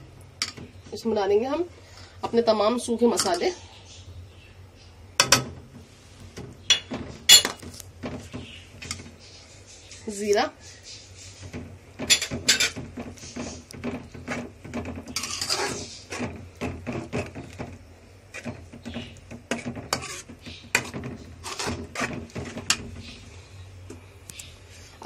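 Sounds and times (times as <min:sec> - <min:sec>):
metal spoon scraping a metal pan: 0:11.2 - 0:17.7, 0:18.3 - 0:23.2.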